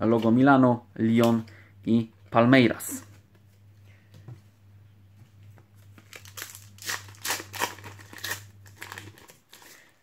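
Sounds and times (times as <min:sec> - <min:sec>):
foil packet crinkling: 0:05.9 - 0:10.0.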